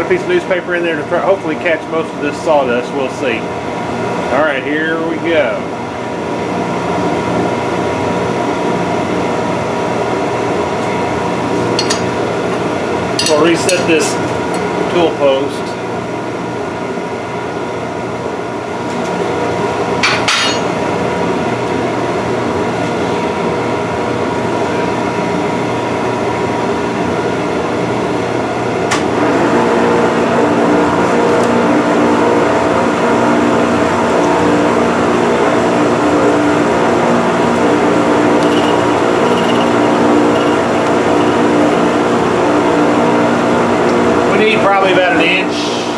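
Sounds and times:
lathe whine: 23.3s - 45.9s
lathe motor hum: 29.0s - 45.9s.

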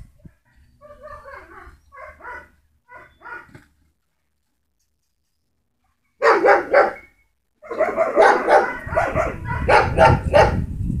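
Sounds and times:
dogs barking: 0.8s - 3.5s, 6.2s - 7.0s, 7.6s - 10.6s.

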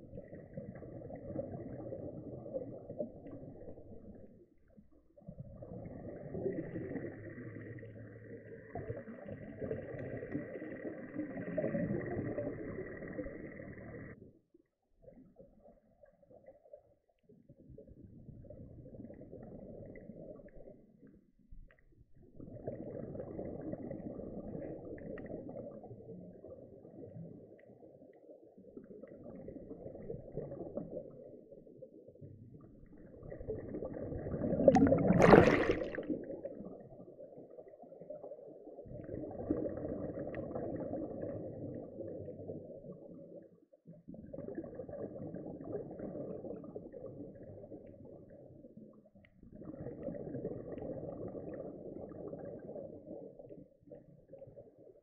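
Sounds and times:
underwater regulator bubbling exhalations: 33.1s - 36.8s.

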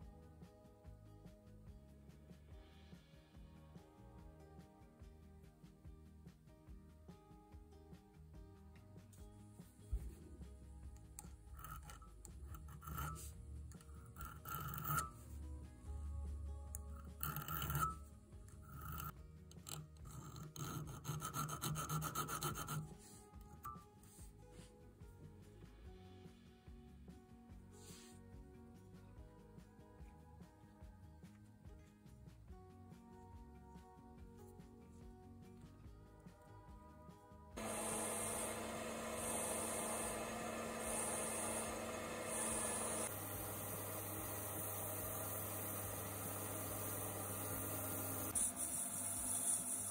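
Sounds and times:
soft background music: 0.0s - 49.9s
metal lathe humming: 11.2s - 15.2s, 17.0s - 18.0s, 37.6s - 49.9s
file rasping on brass: 11.4s - 15.3s, 17.0s - 18.0s, 18.6s - 23.2s, 37.6s - 49.9s.

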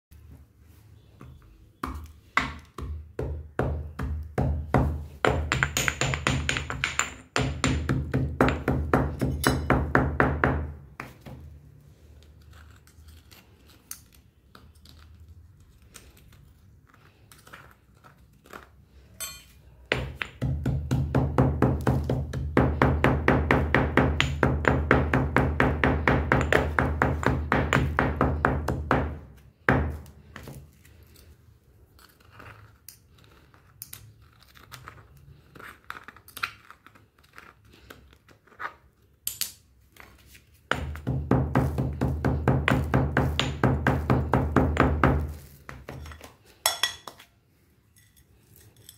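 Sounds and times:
pestle pounding in stone mortar: 2.4s - 11.1s, 19.9s - 30.0s, 40.7s - 46.1s.

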